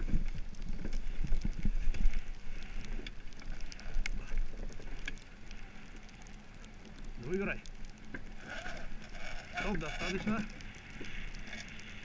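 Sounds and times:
wind rumbling on microphone: 0.0 - 6.3
hull and rigging clicks and knocks: 0.0 - 12.0.

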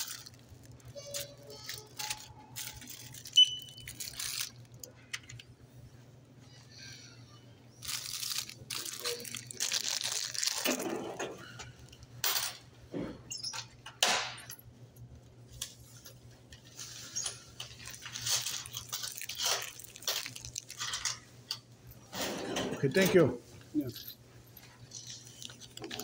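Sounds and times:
rustling and crinkling: 0.0 - 5.0, 7.8 - 11.2, 15.6 - 21.4, 22.9 - 26.0
low electrical hum: 0.0 - 26.0.

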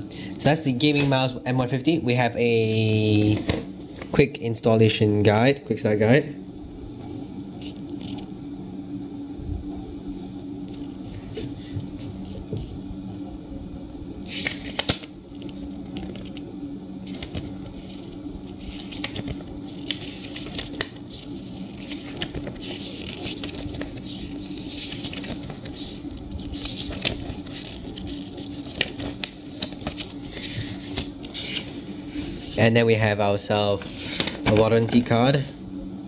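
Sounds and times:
steady low hum: 0.0 - 36.0
paper pages rustling: 2.6 - 4.2, 14.3 - 32.7, 33.7 - 35.2.

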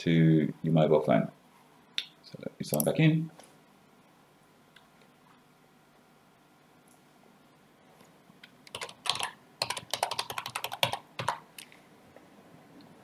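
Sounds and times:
computer keyboard typing: 8.7 - 11.4.

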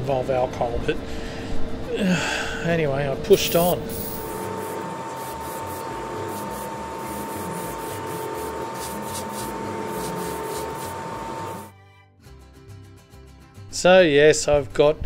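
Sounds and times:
thin whine: 3.3 - 11.7
airbrush spraying hiss: 3.4 - 11.7.

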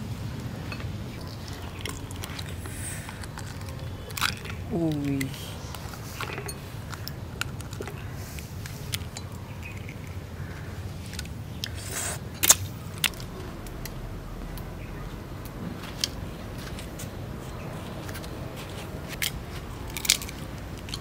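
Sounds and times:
eggshell crackling: 1.1 - 14.0.

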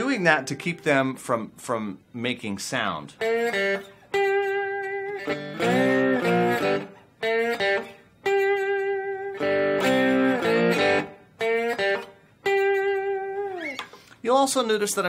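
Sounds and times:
electric guitar slide blues riff: 3.1 - 14.1.

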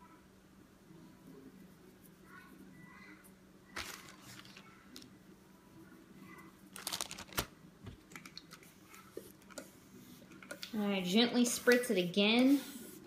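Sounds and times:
dry hay crinkling: 3.8 - 4.8, 6.7 - 7.4.

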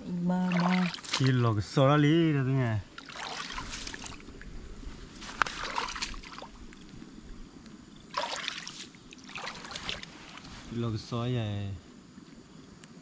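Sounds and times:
water splashing: 0.3 - 1.7, 2.8 - 4.5, 5.2 - 6.8, 8.1 - 10.5.

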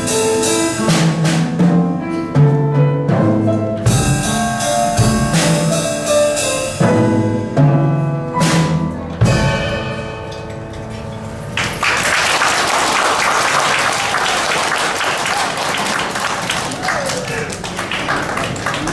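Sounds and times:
drum kit playing: 0.0 - 12.2
piano playing: 0.0 - 16.8
audience applauding: 11.6 - 18.9.

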